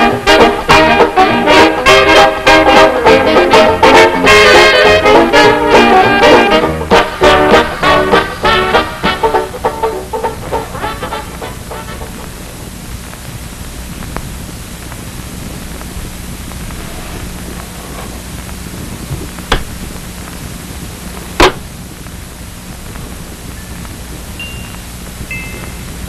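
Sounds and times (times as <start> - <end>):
swing tune: 0.0 - 12.7
steady hiss with low hum: 0.0 - 26.0.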